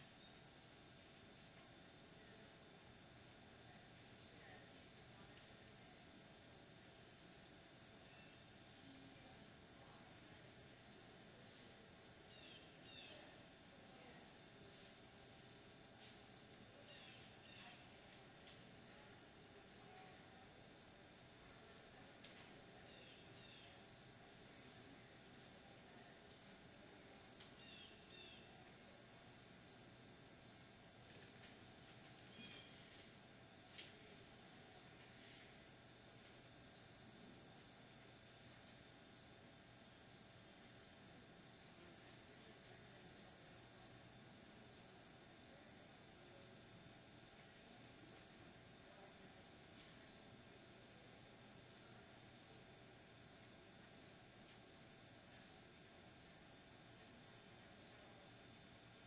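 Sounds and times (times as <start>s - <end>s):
insect high-pitched trill: 10.8s - 14.0s, 14.6s - 20.0s, 22.3s - 26.6s, 27.2s - 59.0s
insect chirping in regular beat: 27.6s - 28.9s.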